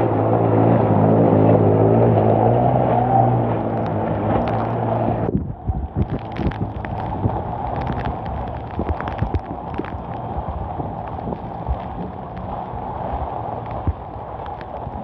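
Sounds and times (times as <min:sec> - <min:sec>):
heavy rain: 0:00.0 - 0:15.0
running floodwater: 0:00.0 - 0:15.0
vehicle engine humming: 0:00.0 - 0:15.0
wind on microphone: 0:00.0 - 0:15.0
sharp crackles: 0:03.5 - 0:15.0.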